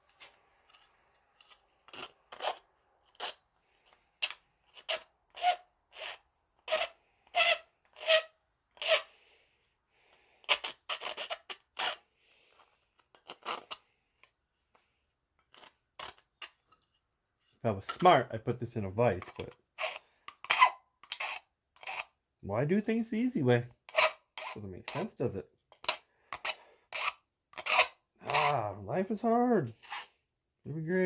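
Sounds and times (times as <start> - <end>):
hand file rasping on metal: 1.4 - 9.1, 10.4 - 13.8, 15.5 - 17.6, 19.2 - 22.2, 23.8 - 28.6, 29.7 - 30.2.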